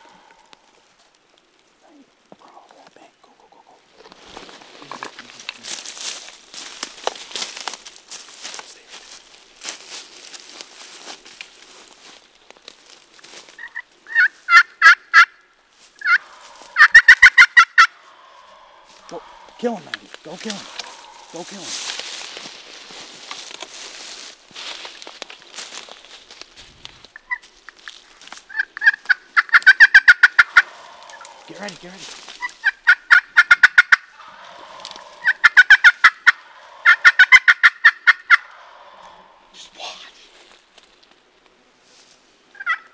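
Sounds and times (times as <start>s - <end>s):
turkey calls: 0.0s - 0.8s, 13.5s - 24.2s, 27.1s - 40.2s, 42.5s - 42.9s.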